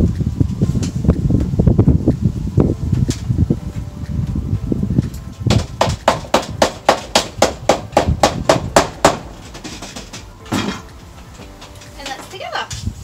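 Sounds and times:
dull thump: 0:05.4 - 0:11.8
mallet tapping aluminium frame: 0:05.5 - 0:12.3.

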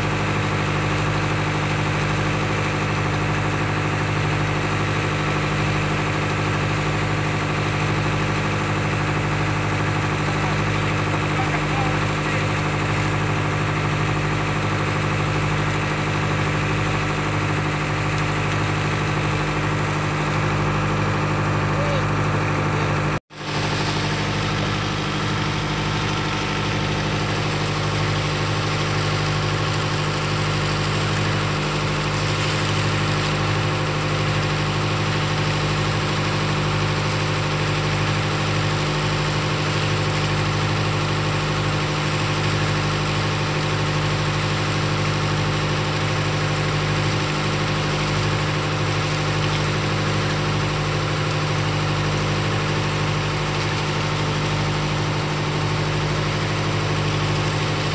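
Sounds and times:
boat engine humming: 0:00.0 - 0:57.9.

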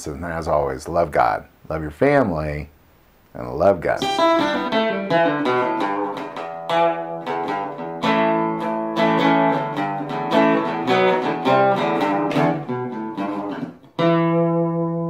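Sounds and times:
acoustic guitar strumming chords: 0:04.0 - 0:15.0.

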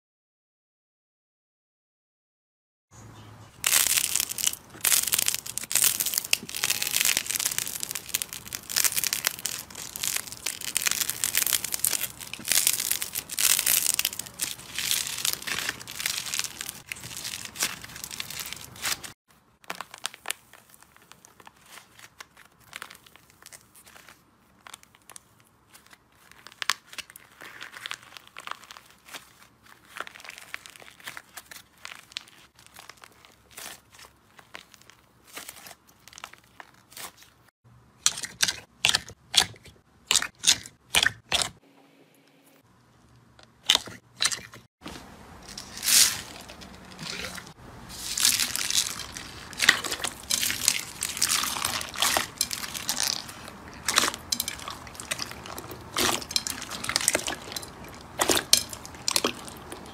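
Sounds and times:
slime sticky tearing: 0:03.6 - 0:23.7, 0:45.6 - 0:59.9
slime crackling and popping: 0:03.6 - 0:37.3, 0:45.6 - 0:59.9.

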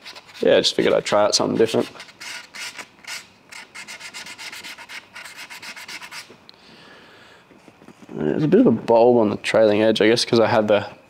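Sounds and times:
sandpaper rubbing: 0:00.0 - 0:06.3.

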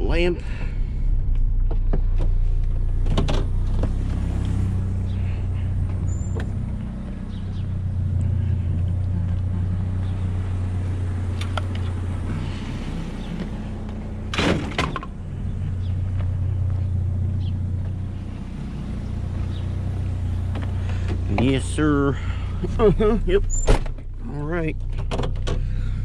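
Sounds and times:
pickup engine idling: 0:00.4 - 0:26.0.

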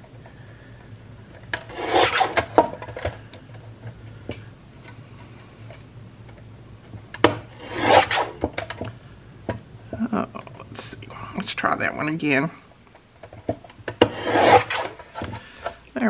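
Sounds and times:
paper trimmer blade swish: 0:01.7 - 0:02.4, 0:07.6 - 0:08.4, 0:14.2 - 0:15.0.

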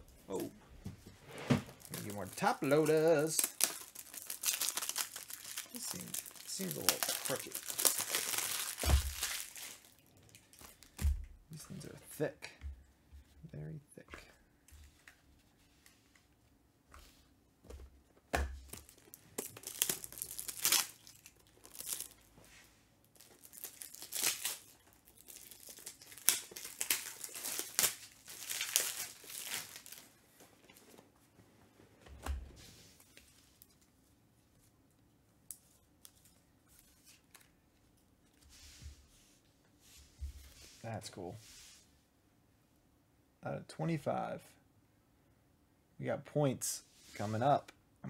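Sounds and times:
foil wrapper ripping and crinkling: 0:01.8 - 0:11.0, 0:18.7 - 0:22.3, 0:23.0 - 0:30.1.

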